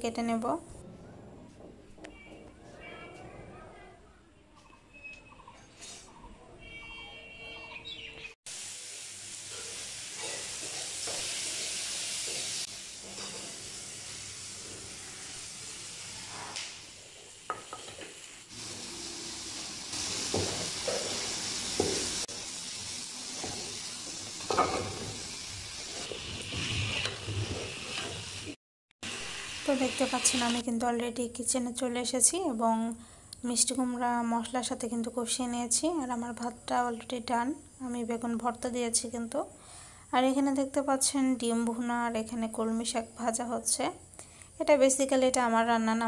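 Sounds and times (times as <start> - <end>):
food sizzling in oil: 8.5 - 30.8.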